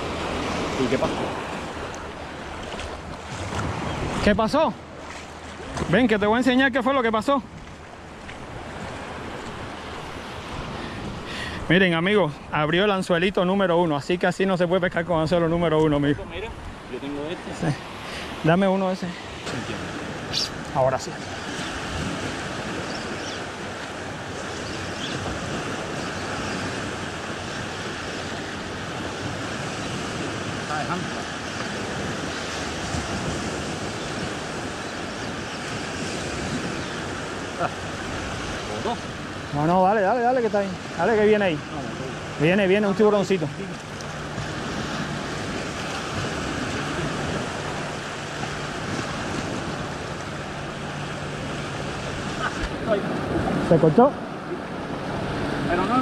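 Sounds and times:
wind buffeting microphone: 0.0s - 6.3s, 19.4s - 39.9s, 40.5s - 56.0s
small waves washing onto sand: 0.0s - 56.0s.

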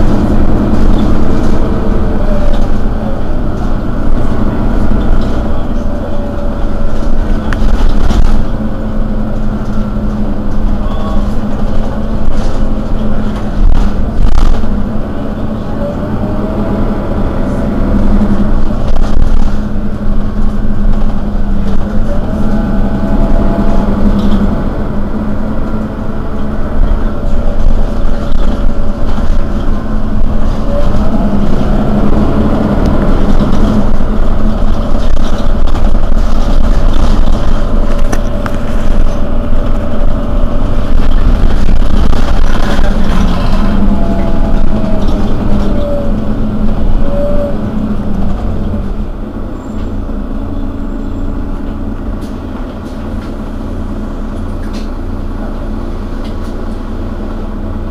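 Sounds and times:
bus engine idling: 0.0s - 57.9s.

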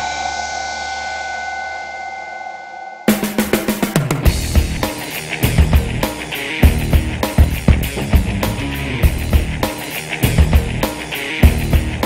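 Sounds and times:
heavy rock music: 3.1s - 12.0s.

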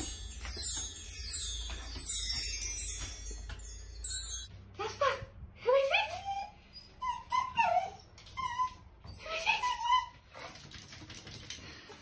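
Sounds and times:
small dog whining: 6.0s - 10.2s.

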